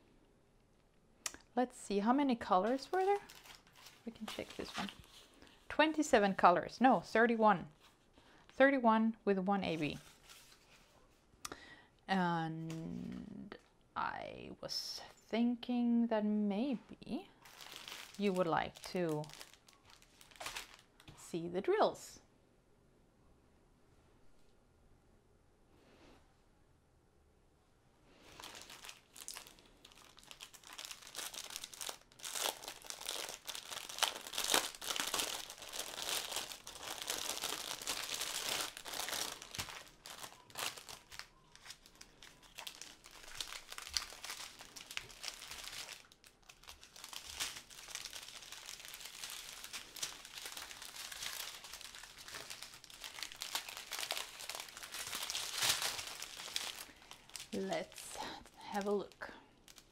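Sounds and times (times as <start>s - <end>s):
plastic wrap crinkling: 2.0s - 7.1s, 17.4s - 21.2s, 28.2s - 59.9s.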